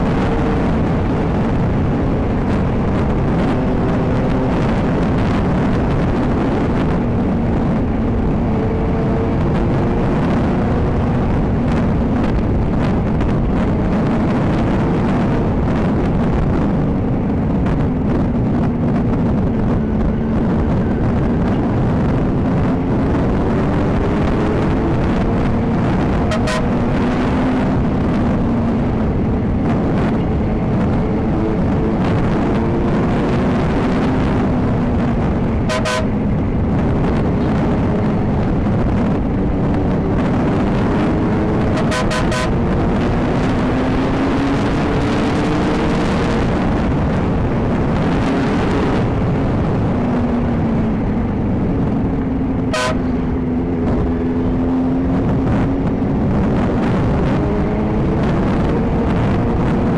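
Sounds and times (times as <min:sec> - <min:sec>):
motorcycle engine running: 0:00.0 - 0:59.9
wind rumble on microphone: 0:00.0 - 0:59.9.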